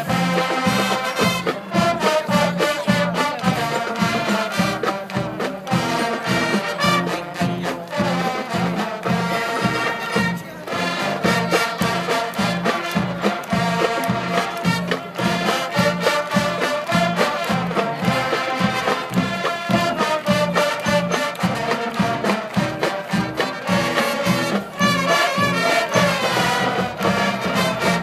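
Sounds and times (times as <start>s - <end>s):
marching band playing: 0.0s - 28.0s.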